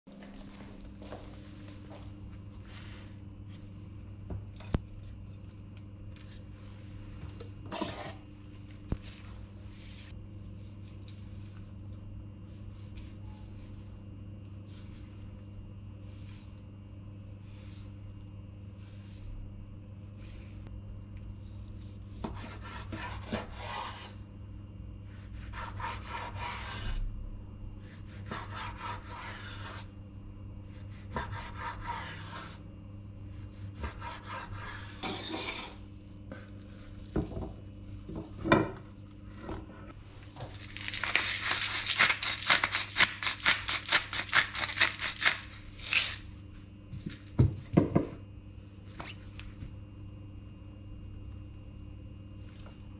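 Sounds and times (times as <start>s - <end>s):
knife scraping cutting board: 7.6s - 8.2s, 22.1s - 24.2s, 25.1s - 27.0s, 27.8s - 29.9s, 30.7s - 32.6s, 33.4s - 37.4s.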